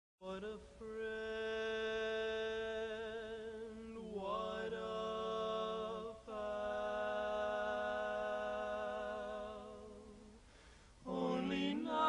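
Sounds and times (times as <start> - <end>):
quartet singing a cappella: 0.8 - 10.4, 11.0 - 12.0.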